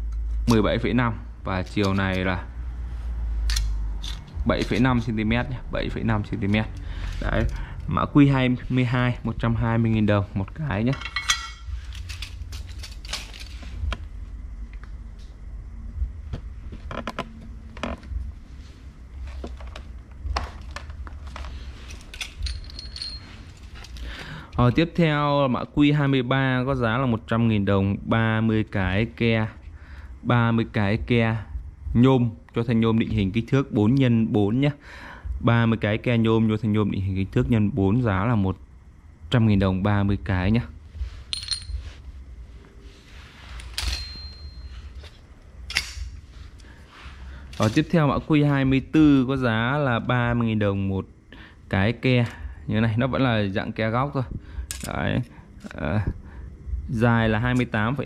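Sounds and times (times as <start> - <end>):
small metal parts clicking: 3.5 - 4.8, 10.9 - 13.6, 20.6 - 24.2, 41.3 - 41.8, 43.6 - 44.6, 45.7 - 46.0, 54.7 - 55.8
metal brackets clinking: 10.9 - 13.6, 21.8 - 24.1, 41.3 - 42.0, 43.6 - 45.0
low rumble: 13.7 - 24.0
high metallic ring: 22.4 - 23.7, 41.3 - 42.1, 43.6 - 45.1.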